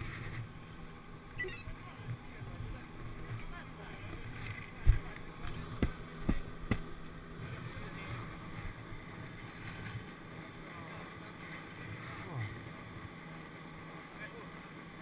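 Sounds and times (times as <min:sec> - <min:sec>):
low hum: 0:00.0 - 0:15.0
sharp knocks: 0:05.8 - 0:06.9.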